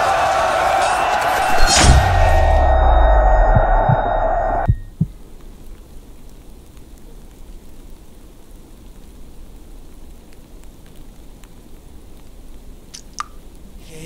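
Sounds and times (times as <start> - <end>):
rain-like hiss: 5.0 - 14.0.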